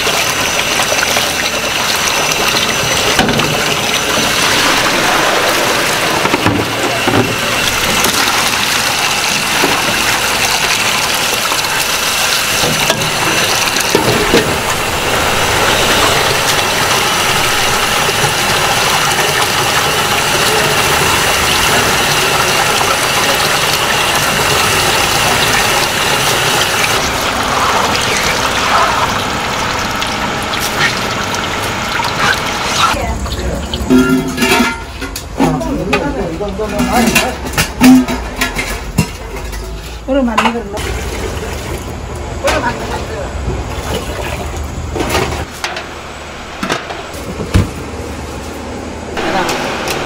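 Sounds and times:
tap water running into a basin: 0.0s - 38.0s, 40.7s - 42.9s
water gushing over steel counter: 0.0s - 38.0s, 40.8s - 43.0s.

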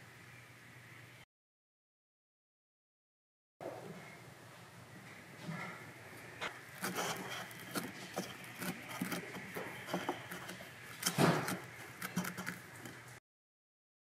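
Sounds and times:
foam bead clay crackling: 6.4s - 13.2s.

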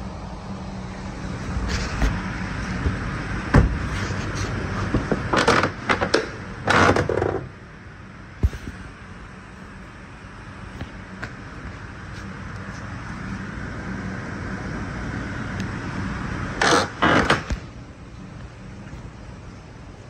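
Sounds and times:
steady low hum: 0.0s - 20.0s
car door swinging scrapes: 1.6s - 5.8s.

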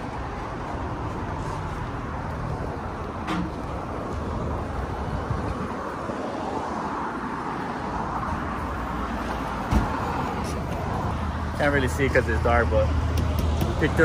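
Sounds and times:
road traffic: 0.0s - 14.0s.

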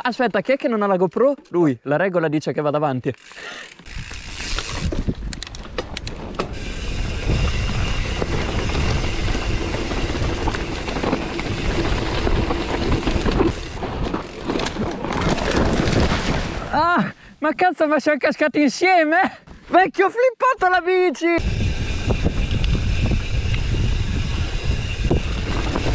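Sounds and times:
bike chain and frame rattling: 3.1s - 16.5s, 21.4s - 25.9s
tyres on dirt and leaves: 3.2s - 16.9s
wind on microphone: 3.9s - 14.2s, 21.4s - 25.9s.

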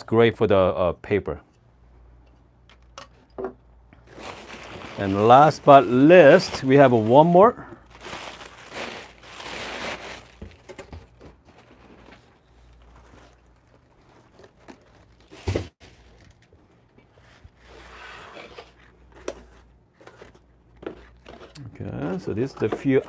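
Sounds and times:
paper and cardboard crinkling: 4.0s - 23.0s.

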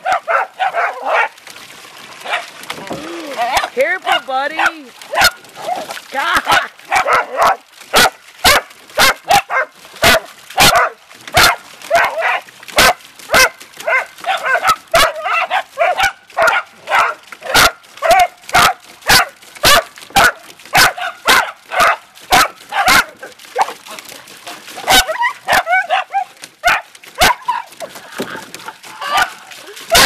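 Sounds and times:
dogs yipping: 0.0s - 1.4s, 2.2s - 2.5s, 3.5s - 23.8s, 24.8s - 30.0s
small dogs barking: 0.0s - 1.4s, 2.2s - 2.5s, 3.5s - 23.8s, 24.7s - 28.0s, 29.0s - 30.0s.

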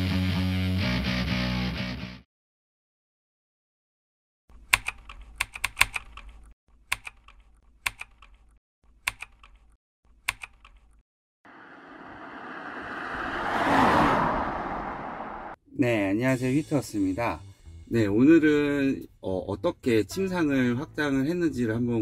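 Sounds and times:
computer keyboard typing: 4.7s - 8.4s, 9.1s - 9.7s
swell of noise: 11.5s - 15.6s.

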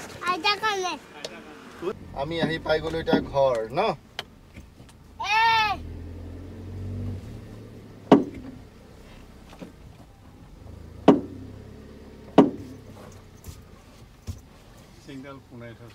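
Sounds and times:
car engine humming: 0.0s - 15.9s
sharp thumps with ringing tail: 11.0s - 11.5s.

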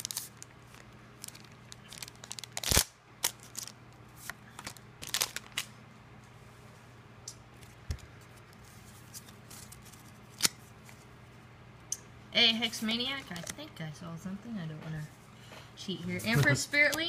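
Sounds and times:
foil wrapper crinkling: 0.0s - 5.7s
trading cards being handled: 7.5s - 11.1s.

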